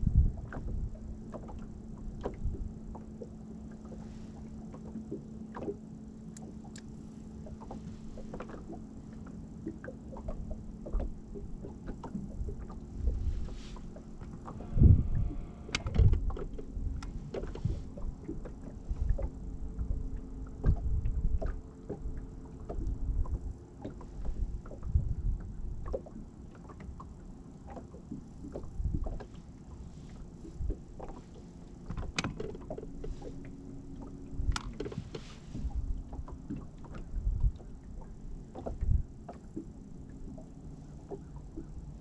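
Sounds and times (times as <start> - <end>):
water slapping against boat hull: 0.0 - 42.0
electric trolling motor humming: 14.2 - 17.1.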